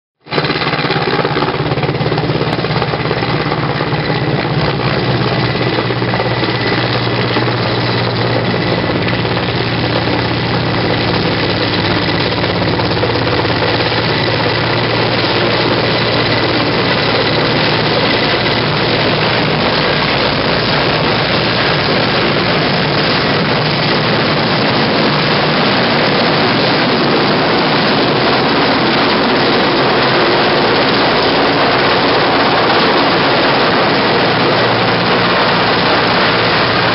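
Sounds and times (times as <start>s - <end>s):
helicopter rotor chopping: 0.2s - 36.9s.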